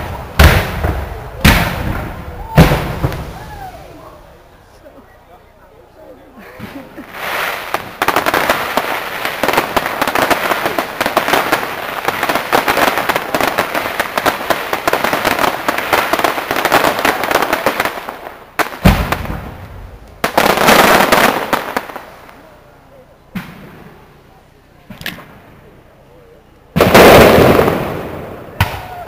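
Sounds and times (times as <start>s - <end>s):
fireworks boom: 0.0s - 4.3s, 18.7s - 22.1s, 23.3s - 24.1s, 26.7s - 29.0s
fireworks crackling: 0.0s - 29.0s.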